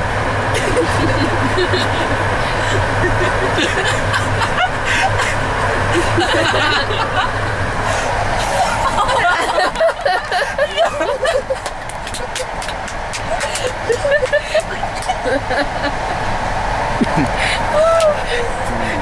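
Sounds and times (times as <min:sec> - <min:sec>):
passenger train running: 0:00.0 - 0:19.0
people laughing: 0:00.5 - 0:16.4, 0:17.0 - 0:19.0.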